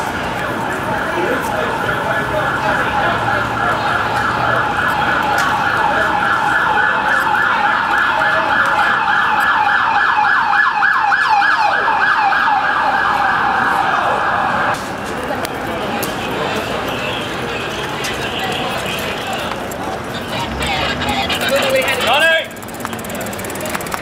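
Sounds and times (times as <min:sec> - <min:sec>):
second siren sliding down: 0:00.4 - 0:14.8
siren yelping: 0:00.4 - 0:14.8.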